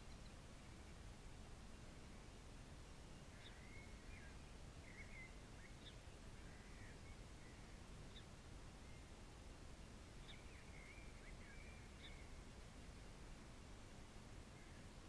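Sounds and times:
faint bird chirps and whistles: 0:00.0 - 0:01.0, 0:03.0 - 0:09.2, 0:10.2 - 0:12.5
low steady background noise: 0:00.0 - 0:15.0.

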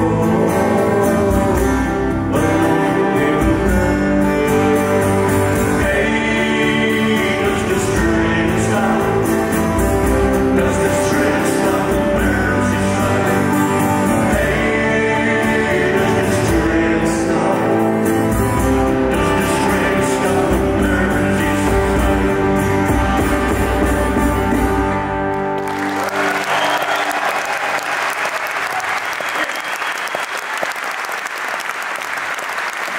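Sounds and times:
man singing: 0:00.0 - 0:24.0
strummed acoustic guitar: 0:00.0 - 0:25.6.

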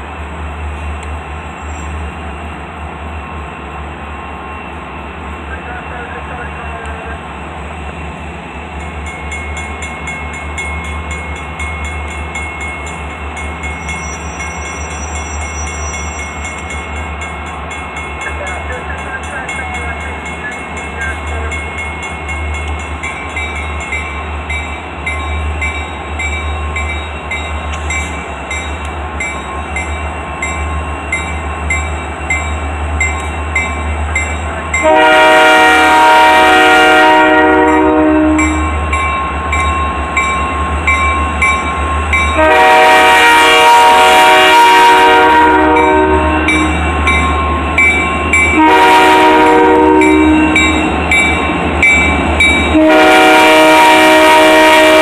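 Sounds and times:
diesel locomotive engine rumbling: 0:00.0 - 0:55.0
locomotive air horn blasts: 0:34.8 - 0:38.8, 0:42.4 - 0:46.8, 0:48.5 - 0:50.8, 0:52.7 - 0:55.0.

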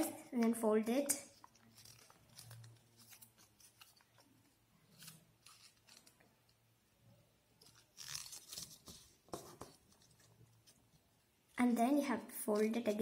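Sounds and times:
paper crinkling and rustling: 0:01.4 - 0:06.6, 0:07.6 - 0:10.9.

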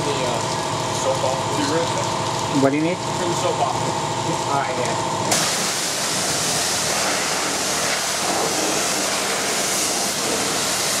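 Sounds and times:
machine hum: 0:00.0 - 0:11.0
pressure washer spraying water: 0:05.3 - 0:11.0.

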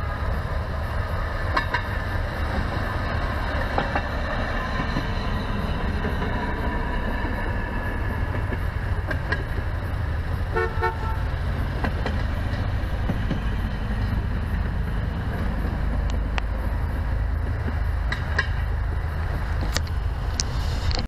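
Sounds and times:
steady low rumble: 0:00.0 - 0:21.0
rail vehicle horn toot: 0:10.5 - 0:11.3.

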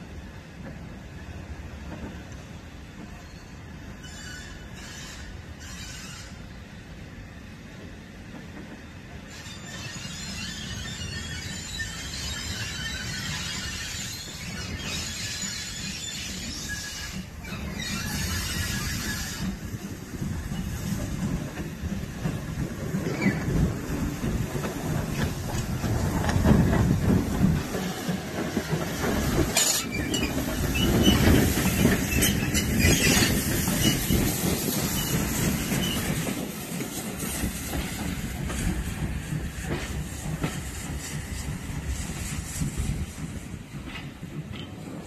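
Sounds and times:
steam locomotive pulling away: 0:08.0 - 0:45.0
wheels clattering over rail joints: 0:12.1 - 0:41.2.

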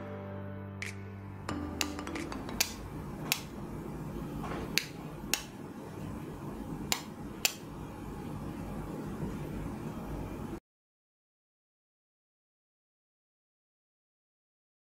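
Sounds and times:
steady low background noise: 0:01.0 - 0:10.6.

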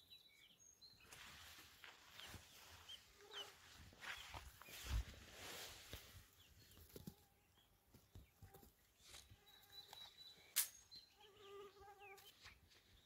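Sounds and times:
chicks peeping: 0:02.1 - 0:05.2
sharp click: 0:10.5 - 0:10.8.

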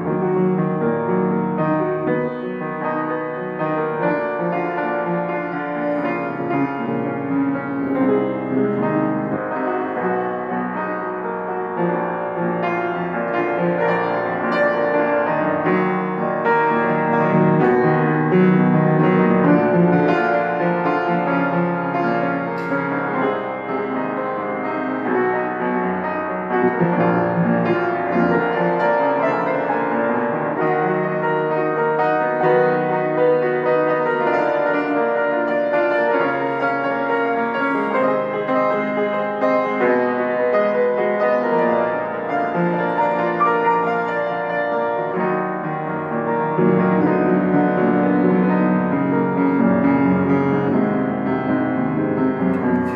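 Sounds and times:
grand piano chords: 0:00.0 - 0:52.9.

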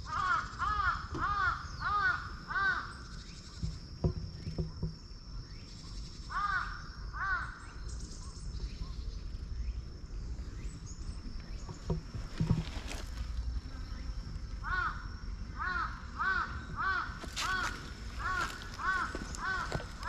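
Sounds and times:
crow cawing: 0:00.0 - 0:03.0, 0:06.3 - 0:07.6, 0:14.6 - 0:20.0.

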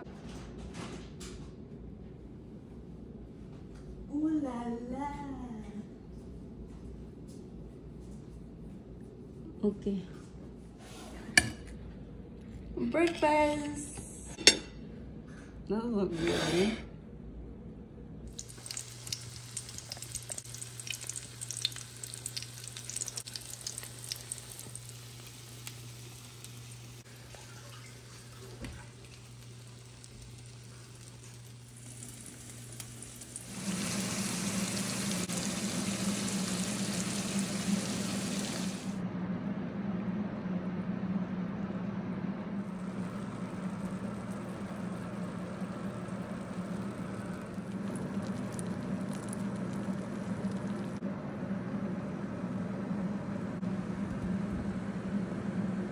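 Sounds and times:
food sizzling in oil: 0:18.3 - 0:39.0, 0:42.7 - 0:50.8.

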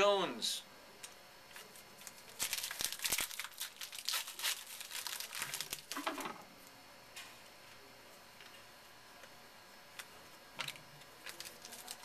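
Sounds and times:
wrapper tearing and crinkling: 0:01.6 - 0:06.3, 0:10.7 - 0:12.0.

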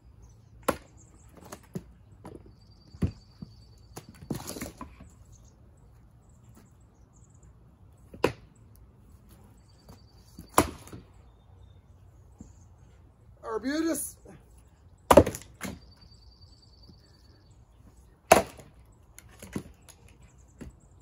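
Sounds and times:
axe chopping firewood: 0:00.6 - 0:01.8, 0:10.4 - 0:11.0, 0:15.1 - 0:15.8, 0:18.3 - 0:18.8.

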